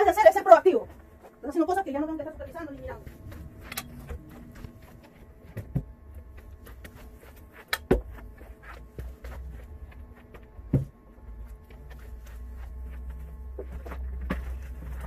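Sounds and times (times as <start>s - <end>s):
footsteps on carpet: 0.0s - 15.0s
low background rumble: 0.0s - 15.0s
knocks and thumps: 10.6s - 11.0s.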